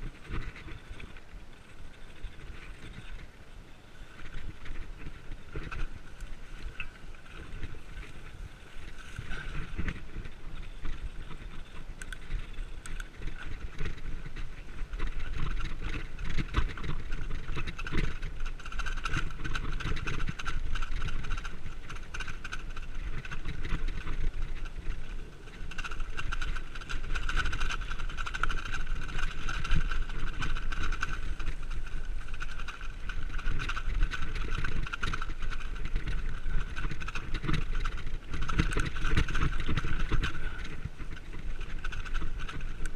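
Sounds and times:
bike rattles and knocks: 0.0 - 3.4, 4.0 - 42.9
bike tyre rumble on dirt: 0.0 - 42.9.

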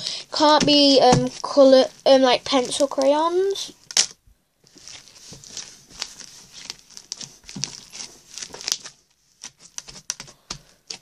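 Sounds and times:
beaded slime squished crunchy crackles: 4.7 - 10.3.

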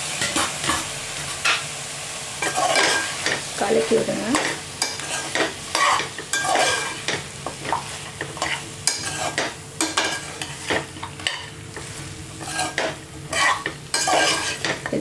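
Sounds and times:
frying sizzle: 0.0 - 15.0
ladle scraping a steel pot: 4.8 - 7.0, 8.4 - 11.4, 12.4 - 14.8.

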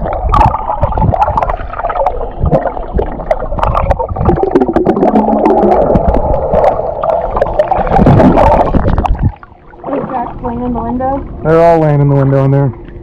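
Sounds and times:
boat engine: 9.5 - 13.0.

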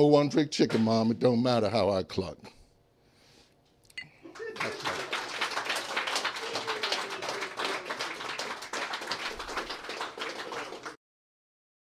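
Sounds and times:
small audience applauding: 4.3 - 11.0.

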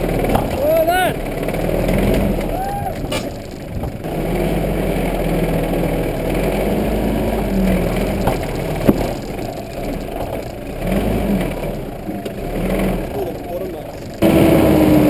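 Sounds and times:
sharp knocks: 0.0 - 4.3, 6.3 - 12.4
off-road vehicle engine under load: 0.0 - 15.0.

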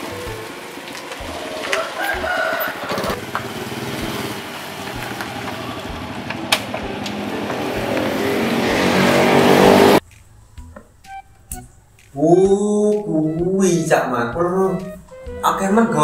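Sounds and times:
motor scooter engine running: 0.0 - 10.0.

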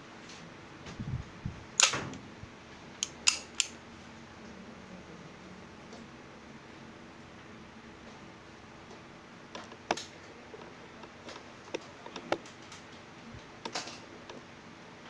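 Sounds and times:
faint room noise: 0.0 - 15.0
metal pistol clicks and taps: 3.0 - 3.8.

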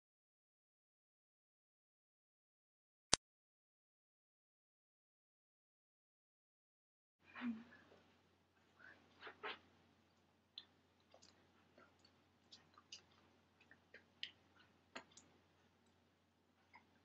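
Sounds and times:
soft clicks and ticks: 10.1 - 17.0.

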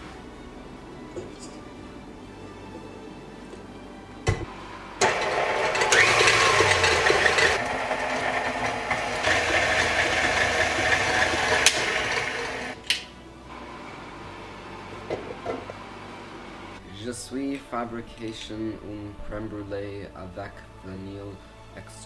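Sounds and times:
stand mixer whisking: 5.0 - 12.8.

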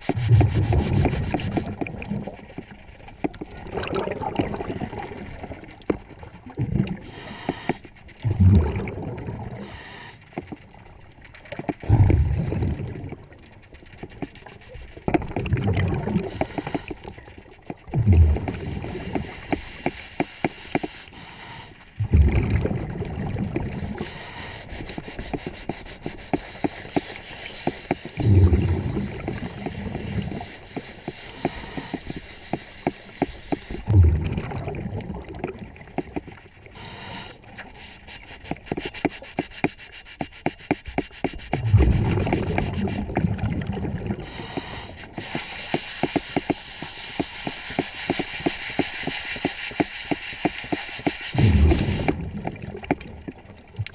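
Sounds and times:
hiss of air: 0.0 - 1.7, 7.0 - 7.9, 9.6 - 10.3, 16.2 - 17.0, 18.4 - 21.8, 23.7 - 33.9, 36.7 - 43.1, 44.2 - 52.2
underwater exhaled bubbles: 0.0 - 20.1, 21.2 - 25.6, 26.2 - 38.9, 41.4 - 49.8, 50.6 - 53.9
crackle of fine clicks: 0.0 - 21.9, 22.5 - 36.6, 37.2 - 53.9.

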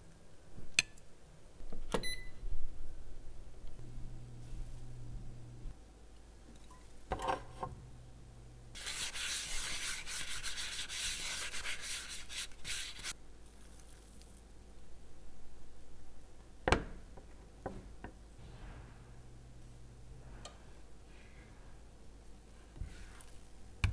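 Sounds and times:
paper towel rubbing a pan: 8.8 - 13.2.

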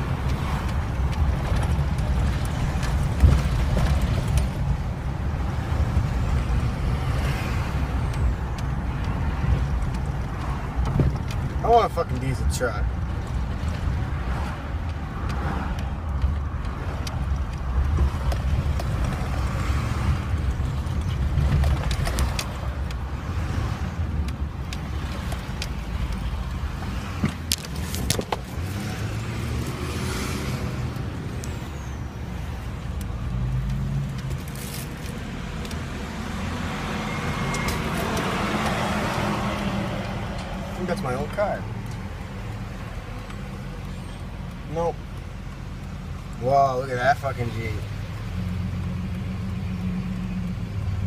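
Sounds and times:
truck engine and road rumble: 0.0 - 51.0
sharp clicks: 32.4 - 46.4.

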